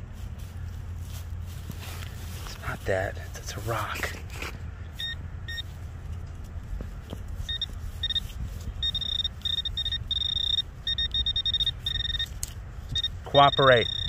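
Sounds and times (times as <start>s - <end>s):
metal detector pinpointer beeping: 5.0s - 5.7s, 7.5s - 14.0s.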